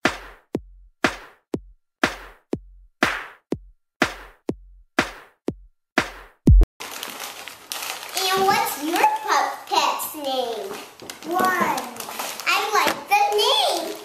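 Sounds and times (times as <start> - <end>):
drum machine beat: 0.0 - 6.7.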